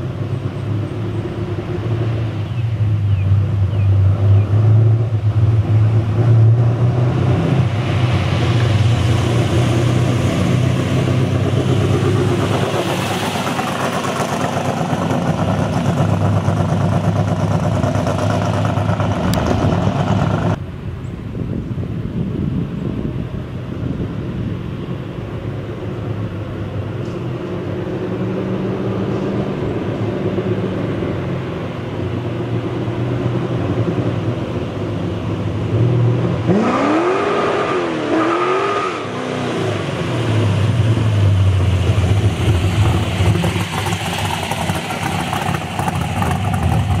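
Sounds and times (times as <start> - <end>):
car engine revving: 3.4 - 20.6, 35.5 - 47.0.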